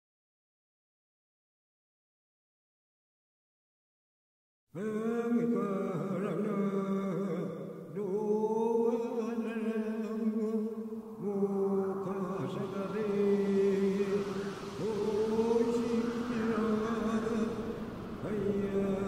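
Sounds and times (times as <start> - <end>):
chanted singing: 4.8 - 19.0.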